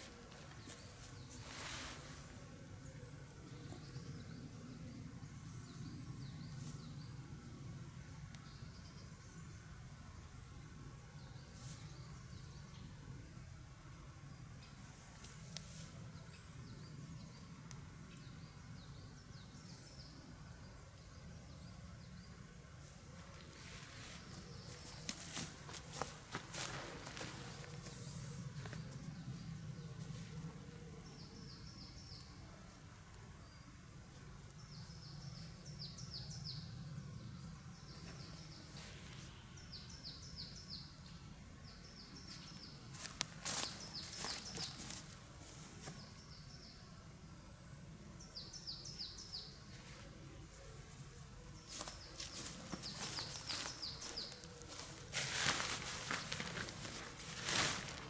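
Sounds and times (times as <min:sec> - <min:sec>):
low outdoor hum: 0:00.0 - 0:58.0
songbird singing: 0:00.0 - 0:58.0
tarp rustling: 0:23.5 - 0:28.0, 0:51.8 - 0:58.0.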